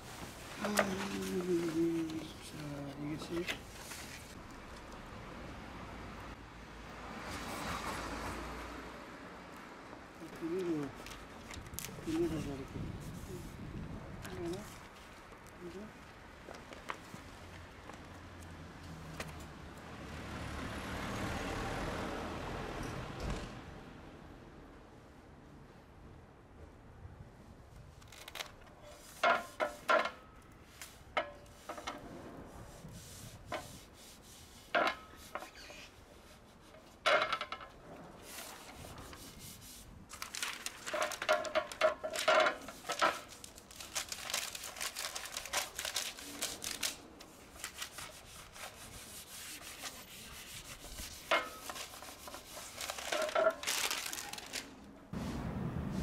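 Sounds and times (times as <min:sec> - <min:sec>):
plastic film peeling and crinkling: 0:00.0 - 0:04.4, 0:28.0 - 0:30.1, 0:38.2 - 0:54.9
gloved hands rubbing sheet: 0:32.5 - 0:36.8, 0:46.1 - 0:54.0.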